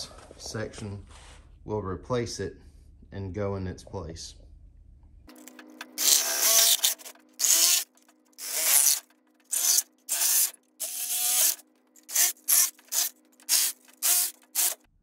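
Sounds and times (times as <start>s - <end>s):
power tool cutting plastic: 5.3s - 14.9s.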